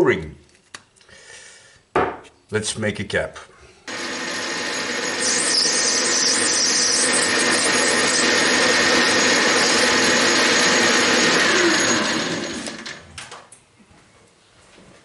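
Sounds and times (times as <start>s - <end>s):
metal lathe running: 3.9s - 13.0s.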